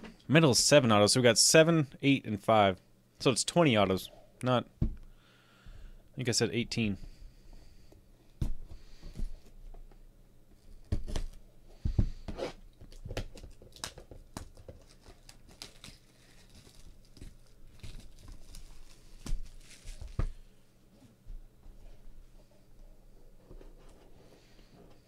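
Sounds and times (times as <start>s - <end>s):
plastic wrap tearing and crinkling: 12.9s - 20.4s.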